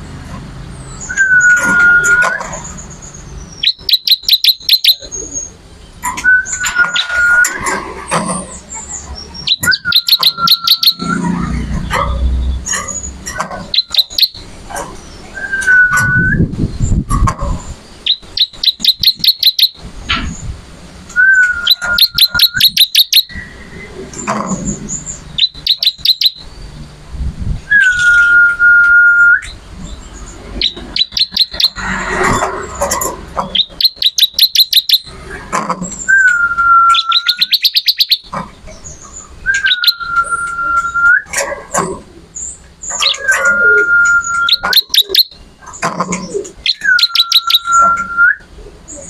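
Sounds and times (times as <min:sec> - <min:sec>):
bird long steady whistle: 0:01.0 - 0:02.4, 0:03.6 - 0:05.2, 0:06.2 - 0:07.6, 0:09.5 - 0:11.2, 0:15.4 - 0:16.5, 0:18.1 - 0:19.8, 0:21.1 - 0:23.9, 0:25.4 - 0:26.4, 0:27.7 - 0:29.6, 0:33.6 - 0:35.1, 0:36.1 - 0:38.3, 0:39.4 - 0:41.3, 0:43.0 - 0:45.4, 0:46.7 - 0:48.5
bird ringing high notes: 0:09.5 - 0:11.2.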